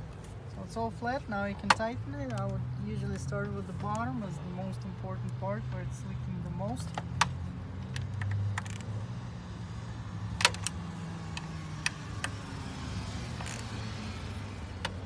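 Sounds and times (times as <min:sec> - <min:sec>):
ratchet clicking on metal: 0:13.3 - 0:13.9.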